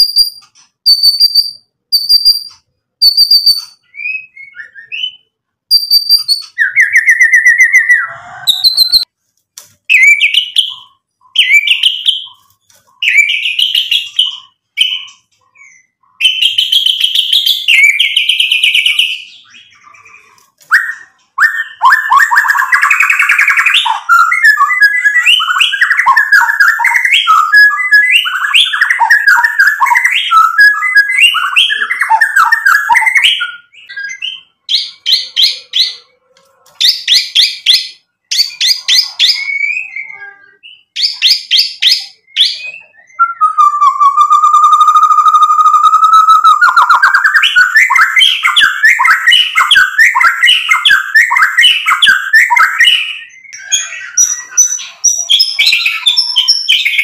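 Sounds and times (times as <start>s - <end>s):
bird singing whistled phrases: 0.0s - 9.1s, 9.9s - 12.4s, 13.0s - 36.0s, 36.8s - 57.0s.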